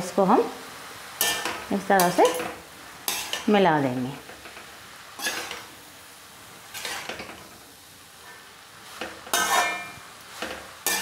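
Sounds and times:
faint sizzle: 0.0 - 11.0
metal spoon scraping a wok: 1.2 - 3.6, 5.2 - 5.7, 6.7 - 7.6, 8.2 - 11.0.

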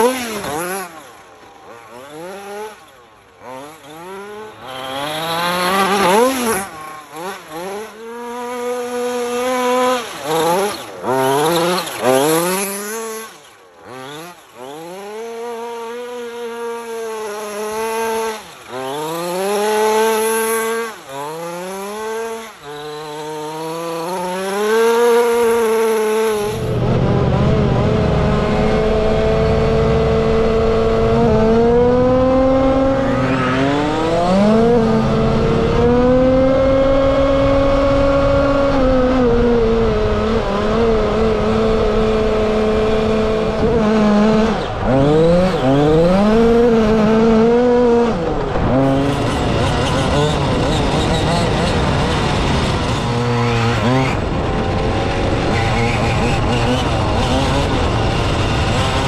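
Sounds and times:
rc car engine revving: 0.0 - 59.0
wind rumble on microphone: 26.4 - 33.2.

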